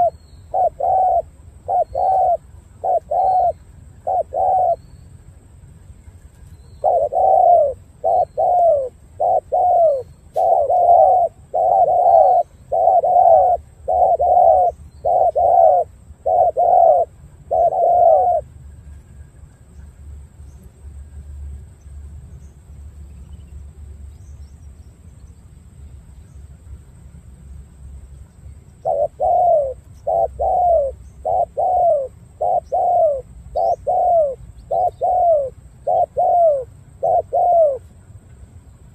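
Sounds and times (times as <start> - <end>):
dove cooing: 0.0 - 4.8, 6.8 - 18.5, 28.8 - 37.9.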